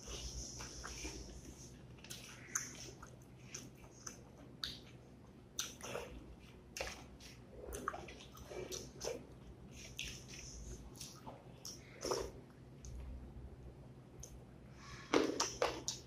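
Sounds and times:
mouth smacks and chewing: 2.0 - 5.0, 5.6 - 13.0.

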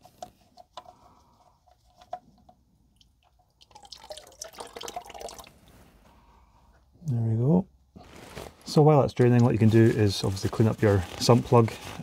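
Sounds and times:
oil dripping and ticking: 0.2 - 5.7
oil splashing into plastic bucket: 2.9 - 5.7.

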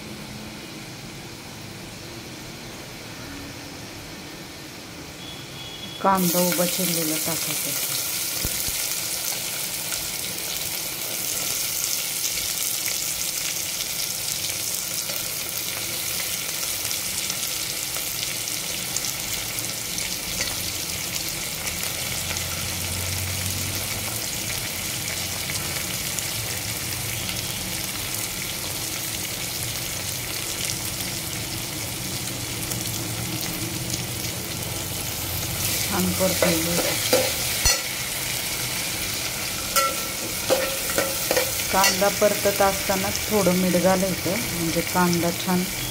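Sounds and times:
onions sizzling in hot oil: 0.2 - 45.9
metal spatula scraping a pot: 39.6 - 42.1.

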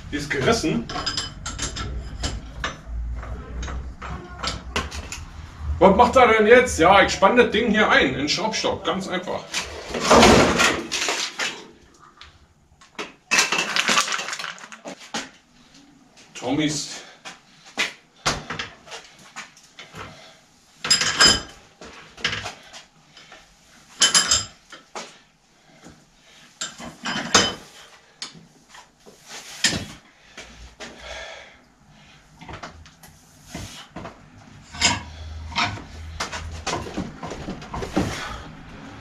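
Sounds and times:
metal tools clinking: 0.8 - 2.8.

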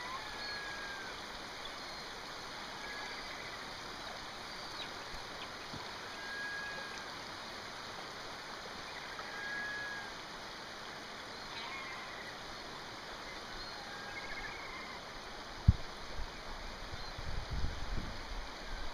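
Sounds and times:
faint bird calls: 0.0 - 3.8, 4.4 - 7.3, 8.8 - 10.2, 11.3 - 12.6, 13.2 - 15.2
flowing river water: 0.0 - 18.9.

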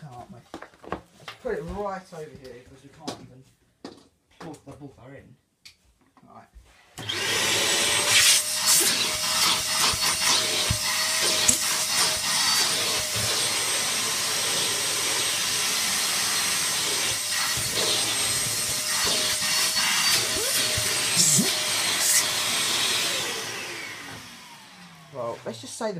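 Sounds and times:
vacuum cleaner running: 7.0 - 25.9.

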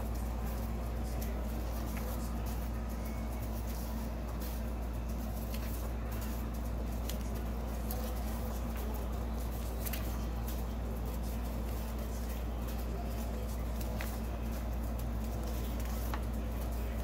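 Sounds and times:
paper sheets rustling: 0.0 - 17.0
steady low hum: 0.0 - 17.0.

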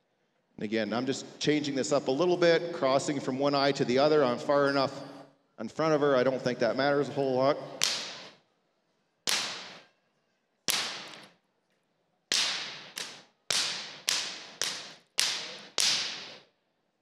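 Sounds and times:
whip cracking: 7.7 - 8.4, 9.3 - 9.9, 10.7 - 11.4, 12.3 - 16.5.

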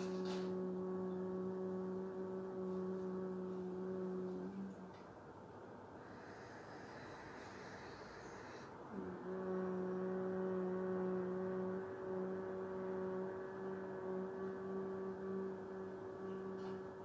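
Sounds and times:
woman humming: 0.0 - 5.0, 8.9 - 17.0.

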